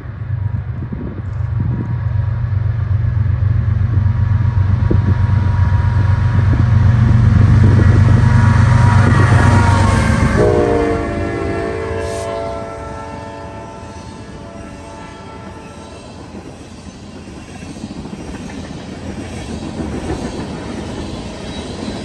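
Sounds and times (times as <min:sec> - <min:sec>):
locomotive engine rumble: 0:00.0 - 0:20.9
locomotive horn chord: 0:08.5 - 0:16.2.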